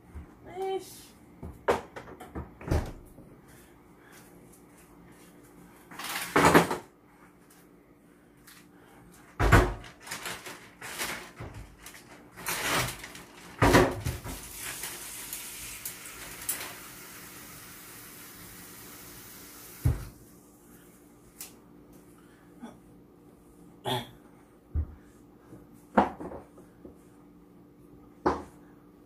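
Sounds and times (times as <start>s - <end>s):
steady hiss: 14.3s - 20.1s.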